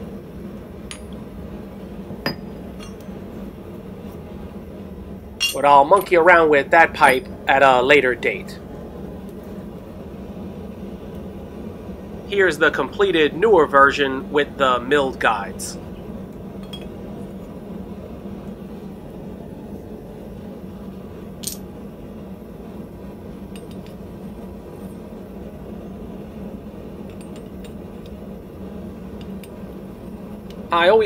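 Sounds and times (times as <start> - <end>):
low hum: 0.0 - 31.0
metal parts clinking: 5.4 - 6.2, 21.4 - 21.6.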